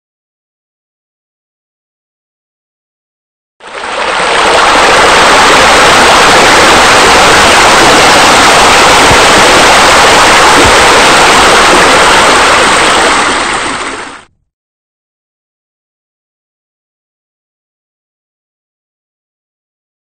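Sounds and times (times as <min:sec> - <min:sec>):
rushing splashing water: 0:03.6 - 0:14.3.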